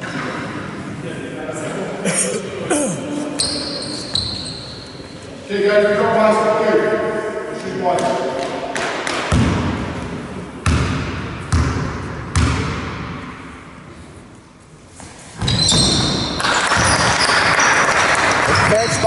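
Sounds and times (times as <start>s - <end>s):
sneakers squeaking on floor: 3.2s - 5.5s, 14.9s - 17.8s
basketball bouncing on wooden floor: 10.6s - 13.1s.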